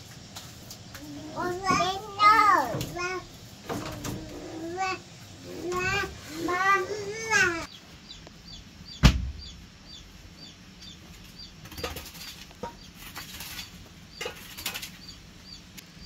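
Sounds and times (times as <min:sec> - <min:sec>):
chicks peeping: 0:04.2 - 0:16.0
sharp knock: 0:09.0 - 0:09.5.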